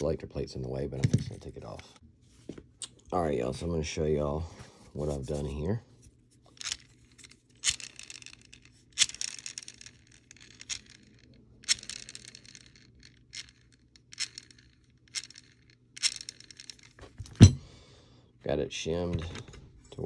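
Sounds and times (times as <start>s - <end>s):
metal parts clicking and clattering: 6.5s - 17.6s.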